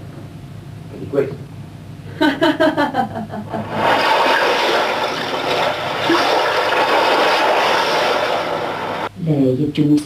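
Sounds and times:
rushing water like surf: 3.7s - 9.1s.

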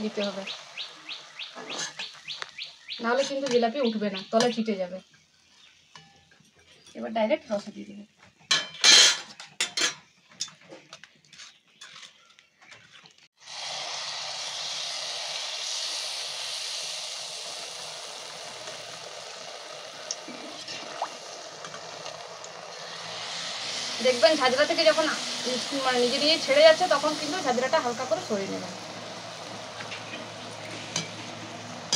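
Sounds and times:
batter sizzling in hot oil: 0.0s - 6.0s, 13.3s - 31.9s.

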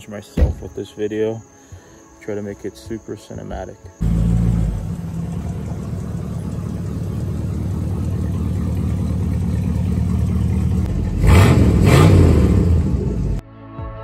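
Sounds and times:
truck engine idling and revving: 4.0s - 13.4s.

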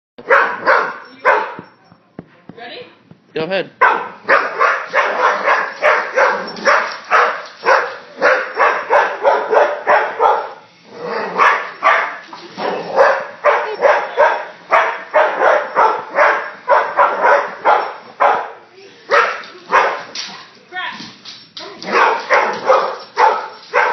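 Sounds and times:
dog barking rapidly: 0.2s - 1.6s, 3.8s - 10.6s, 11.4s - 20.1s, 21.9s - 23.9s.

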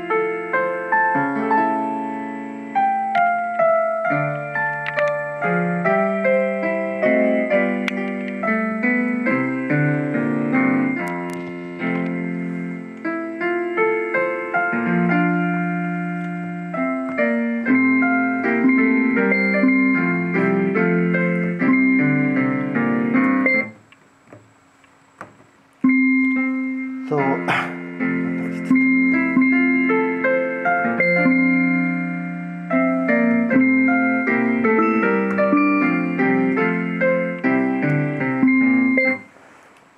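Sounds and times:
piano tune from small speaker: 0.0s - 23.8s, 25.8s - 39.4s.

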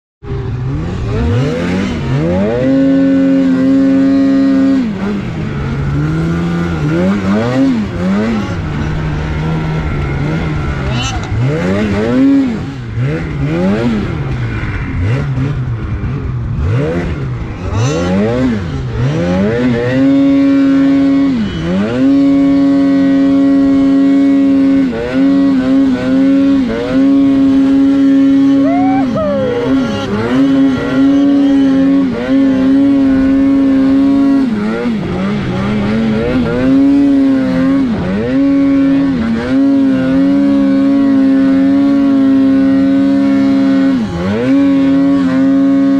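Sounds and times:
snowmobile engine revving: 0.5s - 45.9s.

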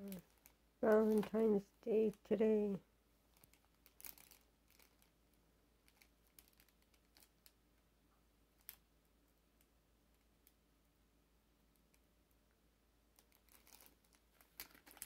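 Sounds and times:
cellophane crinkling and clicks: 0.0s - 1.5s, 3.3s - 7.6s, 13.2s - 15.0s.

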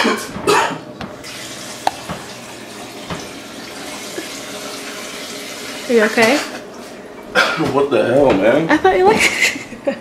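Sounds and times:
tap water running into sink: 1.0s - 7.0s
knocks against sink: 1.8s - 2.4s, 3.0s - 3.3s.

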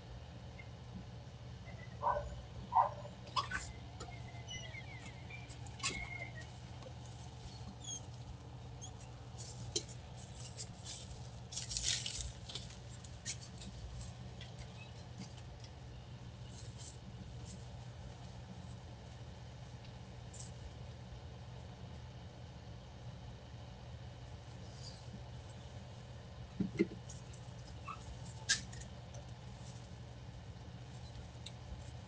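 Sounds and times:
steady low hum: 0.0s - 32.0s
short squeaks and clicks: 3.3s - 6.5s
plastic bag rustling: 9.4s - 14.1s.

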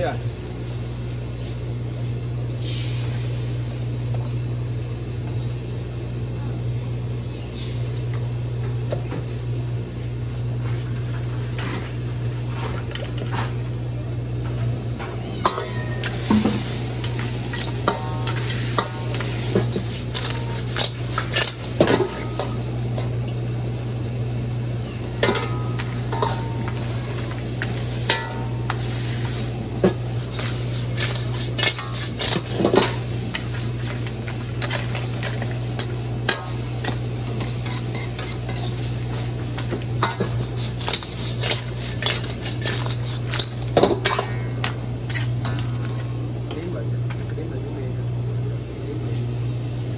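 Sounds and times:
food sizzling in a pan: 0.0s - 10.0s, 15.1s - 46.2s
metal utensils clinking on cookware: 25.1s - 28.8s.

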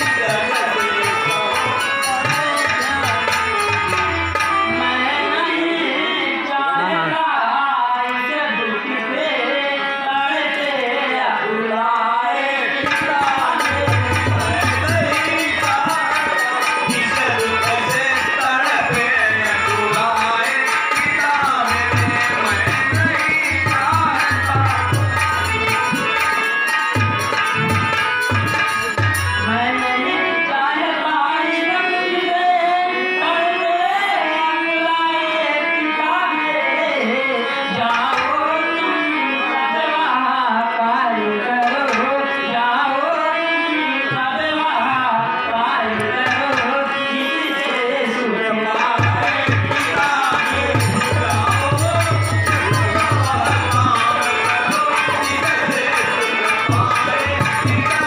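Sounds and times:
person singing through pa: 29.5s - 58.0s.

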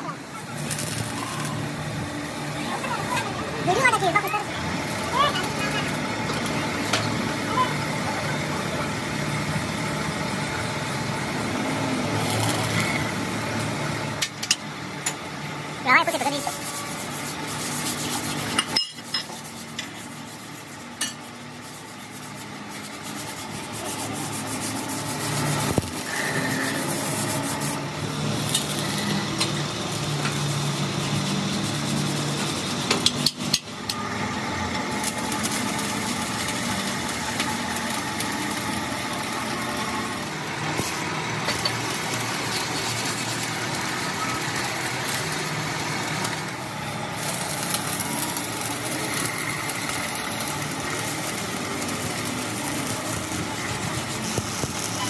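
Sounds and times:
workshop hiss: 0.0s - 55.0s
metal plates and pipes clinking: 18.5s - 19.9s.

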